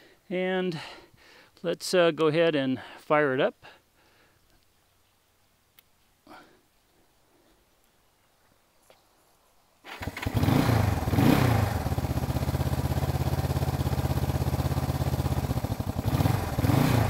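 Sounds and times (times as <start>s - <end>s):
motorcycle engine starting and idling: 9.8s - 17.0s.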